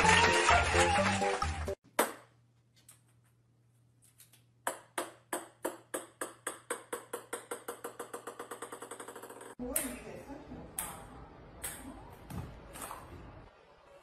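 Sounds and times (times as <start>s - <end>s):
ping-pong ball bouncing on wooden floor: 4.6s - 9.8s.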